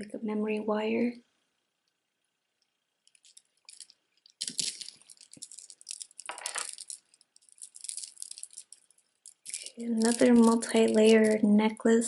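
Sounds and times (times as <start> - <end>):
metal beads and chains rattling: 3.1 - 11.5.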